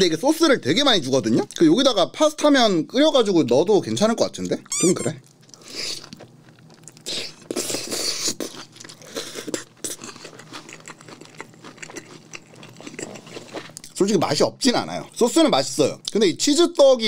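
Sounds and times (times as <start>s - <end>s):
person chewing crunchy food: 5.2s - 14.0s.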